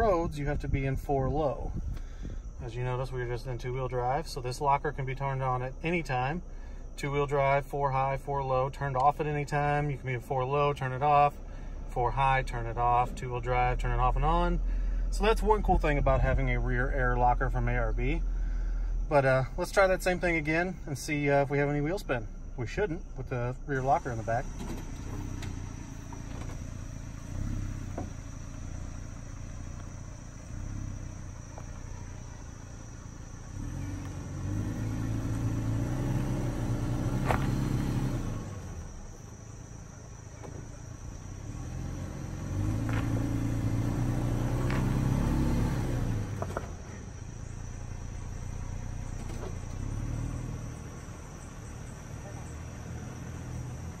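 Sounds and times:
crickets chirping: 0:00.0 - 0:54.0
truck engine revving: 0:22.8 - 0:54.0.

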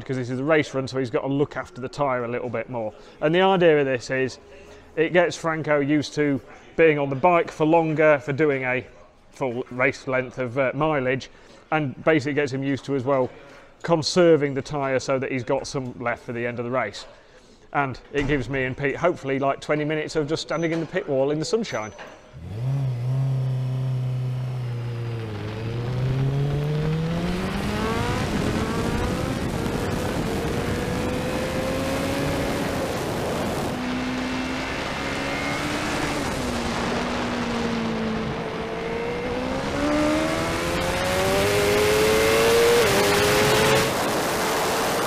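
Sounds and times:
motorcycle engine accelerating: 0:22.4 - 0:45.0.

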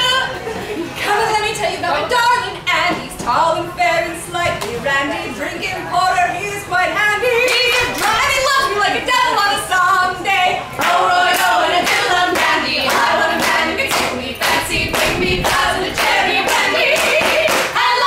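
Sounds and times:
women singing a cappella: 0:01.0 - 0:18.0
hands clapping to a beat: 0:10.8 - 0:17.9.

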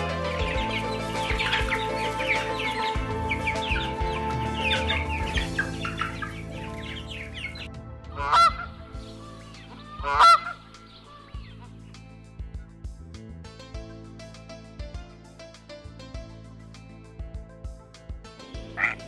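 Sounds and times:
high peeping calls: 0:00.0 - 0:07.7, 0:08.3 - 0:12.0
soft background music: 0:00.0 - 0:19.0
goose honking: 0:08.2 - 0:11.4, 0:18.8 - 0:19.0.

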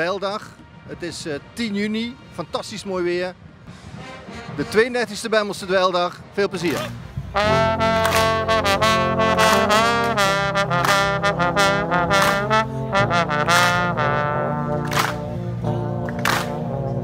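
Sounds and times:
brass band playing: 0:03.7 - 0:05.8, 0:06.5 - 0:17.0.

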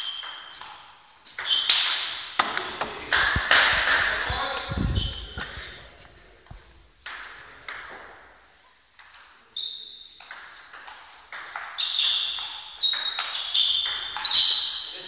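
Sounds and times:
table tennis ball hitting paddles: 0:00.1 - 0:04.7, 0:10.2 - 0:14.4
ball bouncing on table: 0:01.4 - 0:04.4.

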